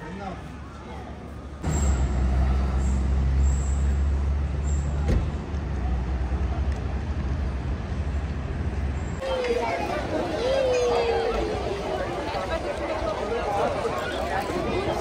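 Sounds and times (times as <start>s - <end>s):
city street traffic: 0.0s - 15.0s
heavy vehicle engine drone: 1.2s - 9.2s.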